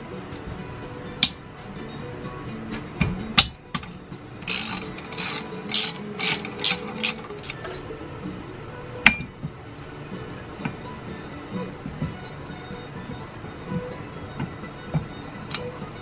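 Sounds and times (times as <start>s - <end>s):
ratchet wrench clicking: 4.4s - 7.6s.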